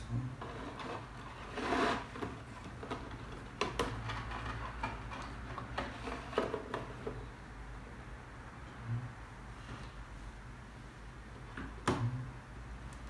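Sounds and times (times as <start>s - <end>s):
filter scraping into plastic tank: 0.4s - 7.0s.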